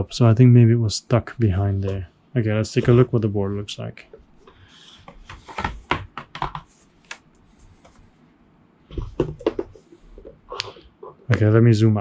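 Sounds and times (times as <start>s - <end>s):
cardboard rubbing: 4.7s - 8.1s
cardboard board knocks and taps: 5.2s - 6.7s, 8.9s - 9.8s.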